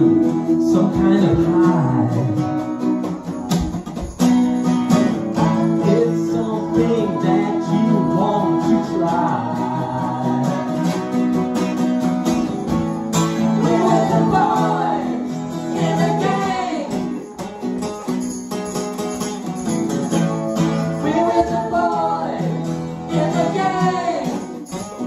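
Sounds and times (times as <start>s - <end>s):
sung vocals: 0.0s - 3.0s, 5.4s - 11.6s, 13.3s - 17.2s, 20.9s - 24.6s
guitars strummed: 0.0s - 25.0s.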